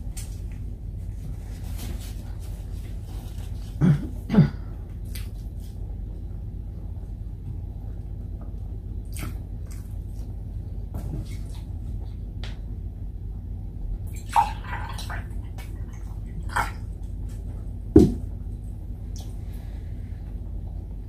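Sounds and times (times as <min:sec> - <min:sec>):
steady low hum: 0:00.0 - 0:21.0
woman clearing her throat: 0:03.8 - 0:04.7.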